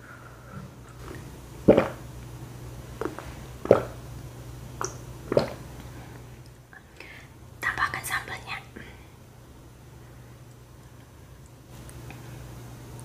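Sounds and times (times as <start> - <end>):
person gulping swallows: 0.9 - 2.1, 3.0 - 4.0, 4.8 - 5.7.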